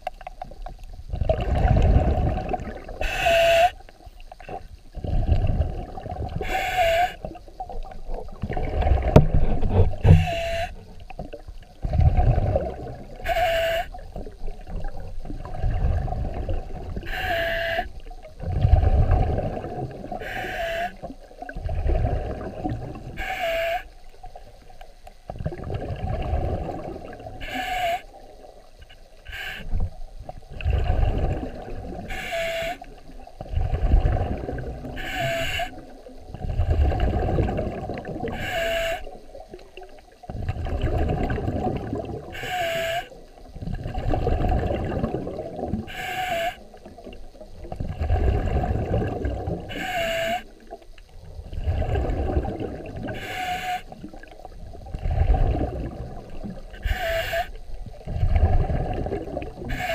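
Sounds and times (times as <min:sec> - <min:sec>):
exhaled bubbles rumbling: 0:00.0 - 0:23.2, 0:24.1 - 0:59.9
regulator inhale hiss: 0:27.3 - 0:28.2, 0:29.2 - 0:29.8, 0:49.7 - 0:50.8, 0:53.0 - 0:54.4, 0:56.8 - 0:57.9.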